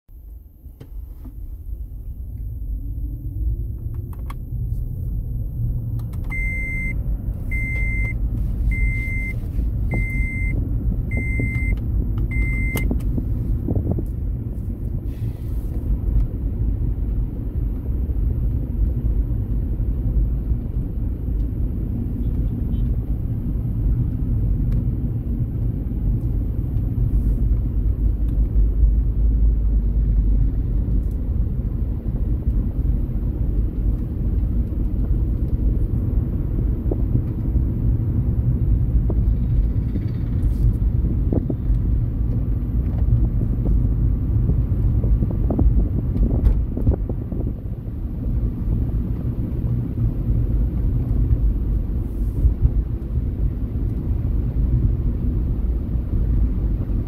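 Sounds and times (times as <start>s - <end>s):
car road and engine rumble: 0.1s - 57.0s.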